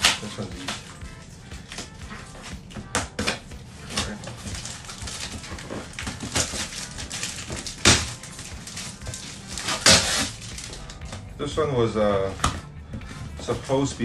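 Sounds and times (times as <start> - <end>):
cardboard box tearing: 3.3 - 10.8.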